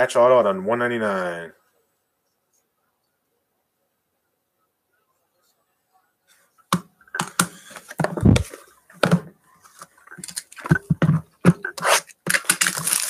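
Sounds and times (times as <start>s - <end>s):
taps and clicks of card boxes: 6.7s - 9.2s.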